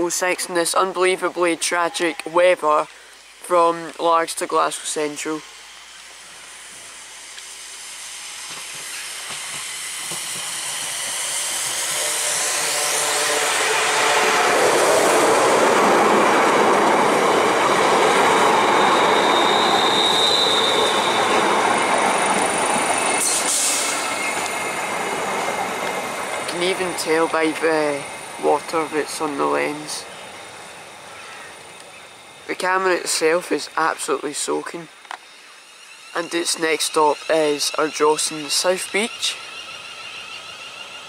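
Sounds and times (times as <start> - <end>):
electric train slowing: 0.0 - 41.0
falling train whine: 0.0 - 41.0
brief high squeal: 18.7 - 21.4.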